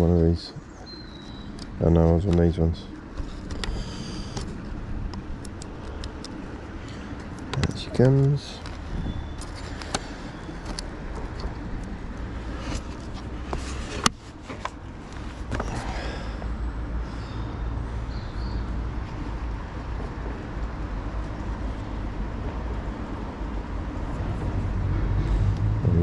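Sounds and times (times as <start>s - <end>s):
low rumble: 24.5s - 26.0s.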